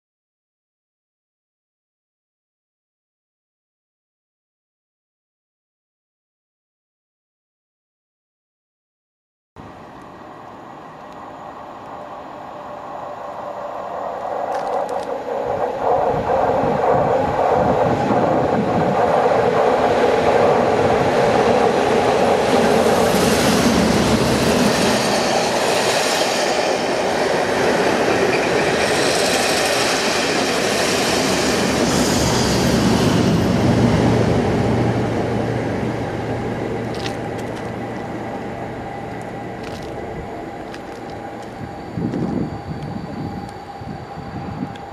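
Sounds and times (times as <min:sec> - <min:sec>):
diesel locomotive passing: 0:09.6 - 0:44.9
low engine hum: 0:33.3 - 0:44.9.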